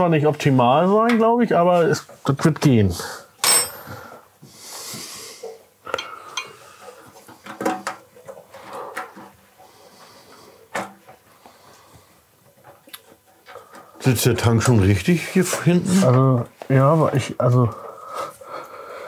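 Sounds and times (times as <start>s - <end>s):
metal tools clinking and knocking: 3.4s - 3.9s.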